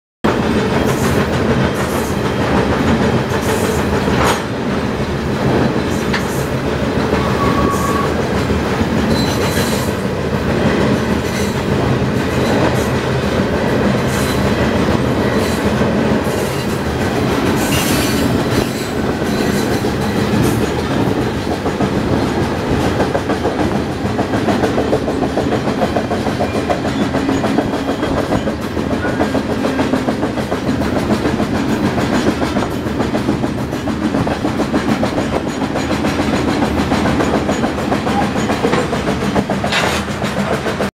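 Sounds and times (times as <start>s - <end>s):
steel wheels running on rail: 0.3s - 40.9s.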